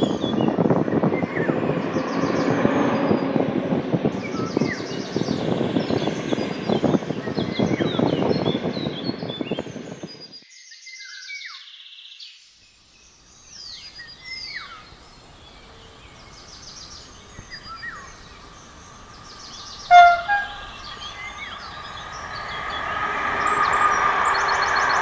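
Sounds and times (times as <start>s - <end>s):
electric train rumble: 0.5s - 10.3s, 14.2s - 25.0s
songbirds chirping and trilling: 13.0s - 25.0s
locomotive horn blast: 19.9s - 21.5s.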